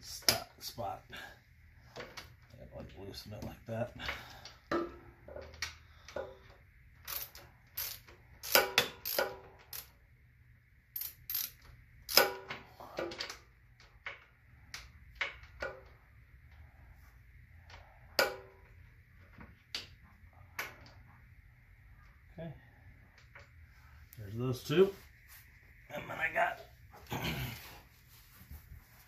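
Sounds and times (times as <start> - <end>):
ratchet wrench clicking: 7.0 - 10.0, 10.9 - 12.4.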